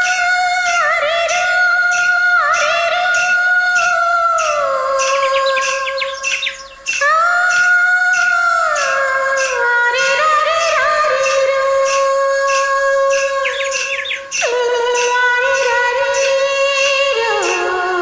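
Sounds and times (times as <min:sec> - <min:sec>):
light percussion beat: 0:00.0 - 0:18.0
quick chirp-like notes: 0:00.0 - 0:18.0
high sliding melody line: 0:03.8 - 0:18.0.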